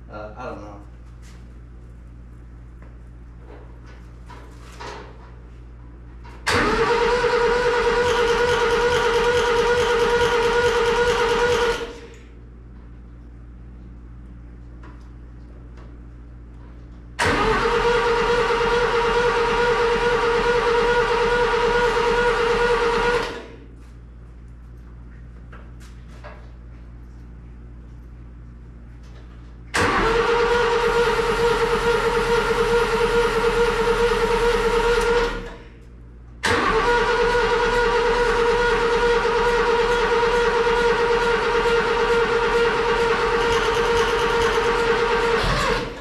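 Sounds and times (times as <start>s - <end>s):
engine cranking turnover pulses: 6.5s - 12.0s, 17.2s - 23.4s, 29.8s - 35.6s, 36.4s - 46.0s
starter motor whine: 6.5s - 12.1s, 17.2s - 23.5s, 29.8s - 35.6s, 36.4s - 46.0s.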